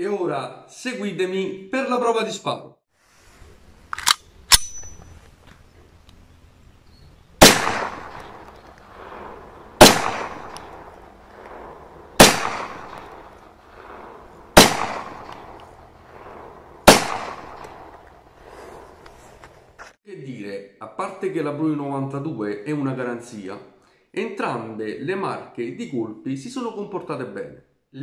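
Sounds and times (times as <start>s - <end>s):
blank pistol shots with echo: 7.4s - 18.0s.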